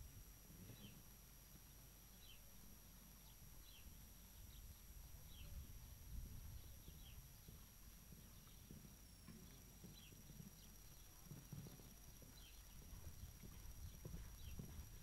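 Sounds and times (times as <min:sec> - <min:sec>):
horse hoofbeats on sand: 0:06.5 - 0:15.0
small bird chirping: 0:06.5 - 0:15.0.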